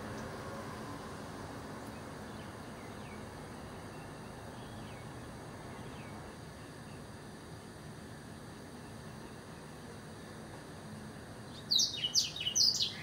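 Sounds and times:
background rumble and hiss: 0:00.0 - 0:13.0
bird chirps: 0:11.5 - 0:13.0.

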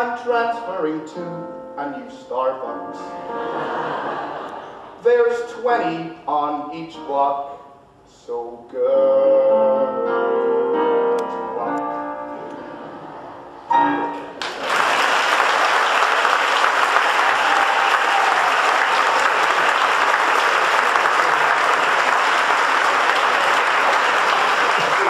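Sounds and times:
audience applause: 0:14.4 - 0:25.0.

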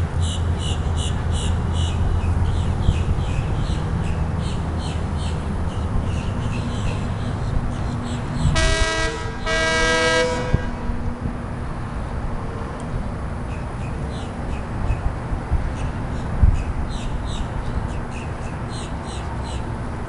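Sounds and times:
air horn blasts: 0:08.5 - 0:10.9.

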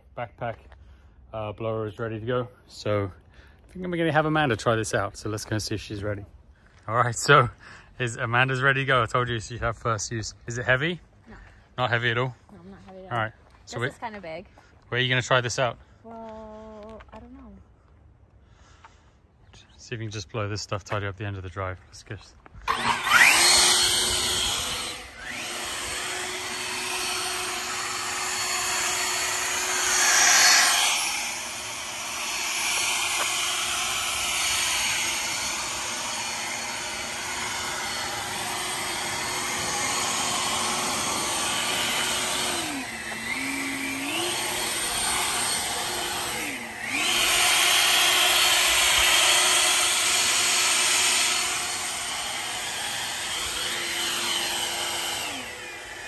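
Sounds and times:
leaf blower running: 0:22.6 - 0:56.0.

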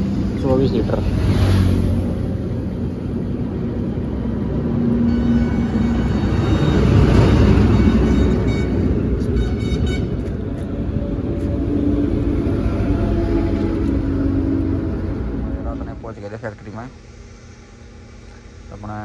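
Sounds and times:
low rumble: 0:06.2 - 0:17.7.

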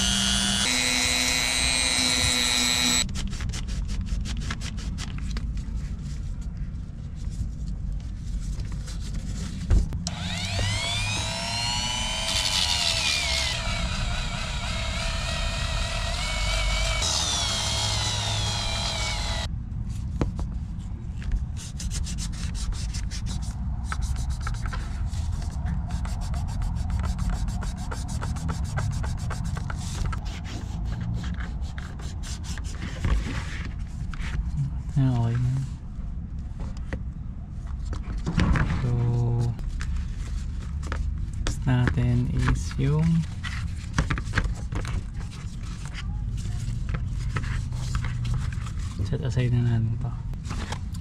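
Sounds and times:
rotary tool grinding: 0:00.0 - 0:03.1, 0:10.0 - 0:19.5
scratchy scraping on shoe sole: 0:21.6 - 0:34.6.

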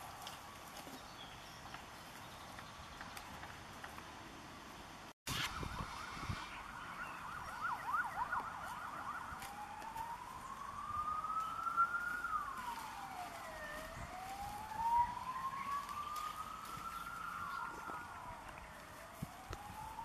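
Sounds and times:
emergency vehicle siren: 0:05.3 - 0:20.0.

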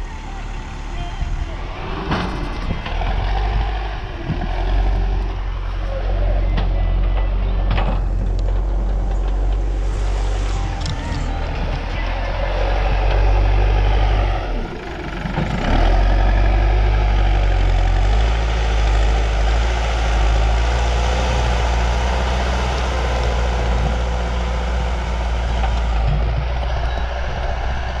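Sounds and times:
backhoe diesel engine running: 0:00.0 - 0:28.0.

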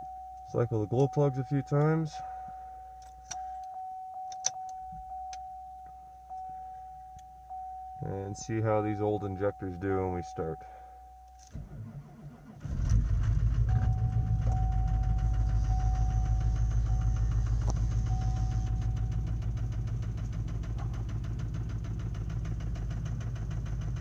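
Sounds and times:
diesel engine cranking: 0:11.4 - 0:24.0
diesel engine idling with clatter: 0:11.5 - 0:24.0.

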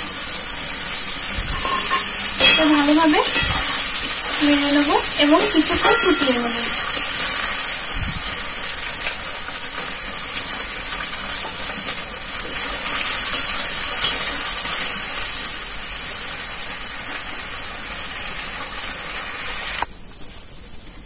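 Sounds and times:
beans sizzling in a wok: 0:00.0 - 0:20.1
spatula stirring: 0:01.5 - 0:06.8
spatula tapping on pan: 0:05.4 - 0:06.6.

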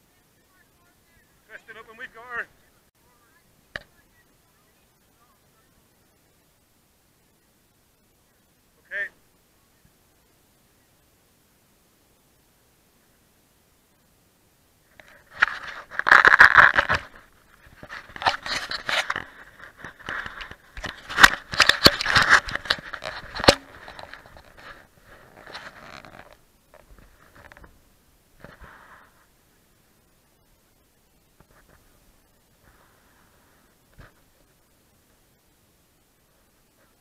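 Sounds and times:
dry grass scraping and rustling: 0:14.9 - 0:27.8.

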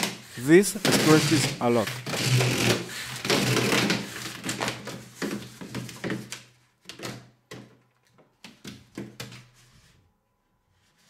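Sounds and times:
plastic hose crinkling: 0:00.8 - 0:07.2.

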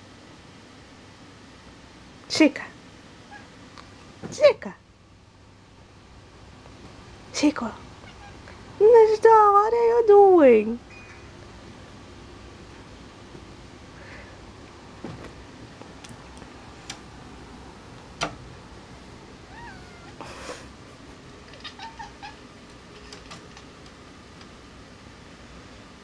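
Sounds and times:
cat chirping: 0:08.0 - 0:08.5, 0:19.5 - 0:20.2, 0:21.5 - 0:22.5.

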